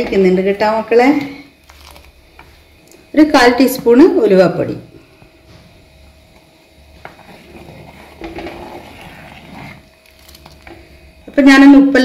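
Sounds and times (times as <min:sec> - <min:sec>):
faint steady hum: 0:00.0 - 0:12.0
wooden ladle scraping clay pot: 0:06.9 - 0:10.7.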